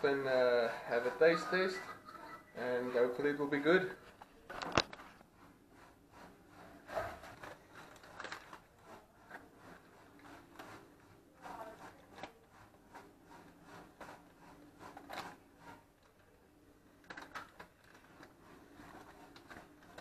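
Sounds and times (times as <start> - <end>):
aluminium foil crinkling: 7.3 - 9.4, 17.0 - 20.0.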